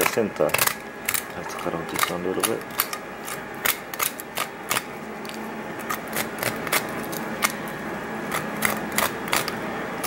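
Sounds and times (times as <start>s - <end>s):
knife clicking through fish bone: 0.0s - 1.3s, 1.9s - 7.6s, 8.3s - 9.6s
steady background hum: 0.0s - 10.0s.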